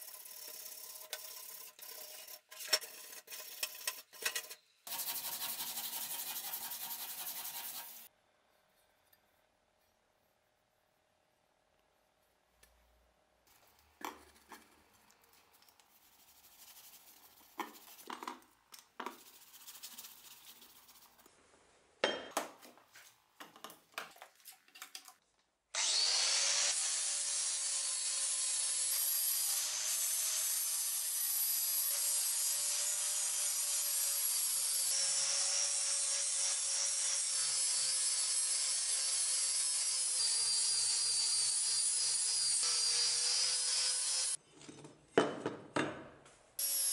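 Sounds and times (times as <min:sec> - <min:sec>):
hand tool scratching on steel: 0:00.0 - 0:08.1
angle grinder grinding steel: 0:25.8 - 0:44.4.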